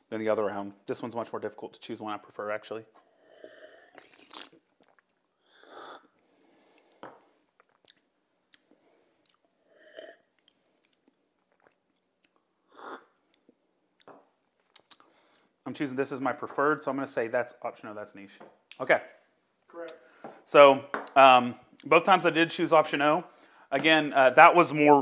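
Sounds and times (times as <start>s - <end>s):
person sipping and slurping: 3.0s - 8.0s, 8.6s - 13.6s.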